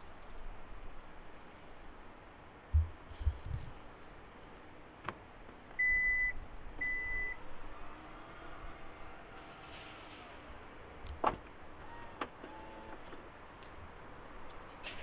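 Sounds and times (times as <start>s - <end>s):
dull low thumps: 2.7s - 3.7s.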